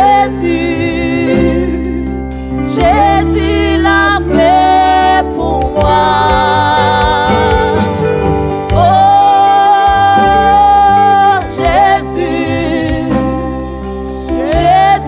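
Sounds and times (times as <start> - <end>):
band with bass and guitars: 0.0 - 15.0
person singing with vibrato: 0.0 - 15.0.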